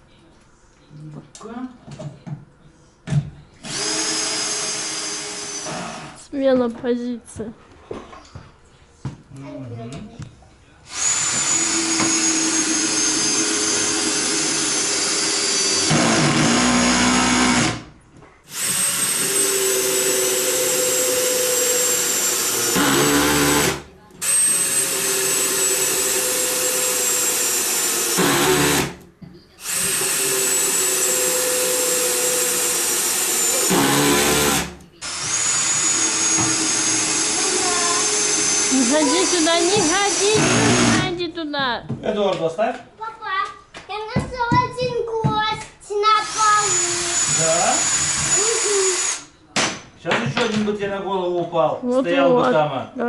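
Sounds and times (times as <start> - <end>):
drill driver whining: 3.6 - 6.2, 10.9 - 17.9, 18.5 - 29.0, 29.6 - 41.2, 46.2 - 49.3
drill motor labouring: 3.6 - 6.2, 10.9 - 17.9, 18.5 - 29.0, 29.6 - 41.2, 46.2 - 49.3.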